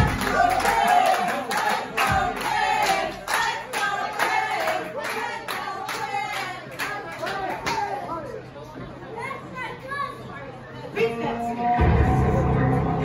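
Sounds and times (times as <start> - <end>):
low music beat: 0.0 - 1.0, 2.0 - 3.2
crowd singing along: 0.0 - 6.7
crowd clapping in rhythm: 0.0 - 7.9.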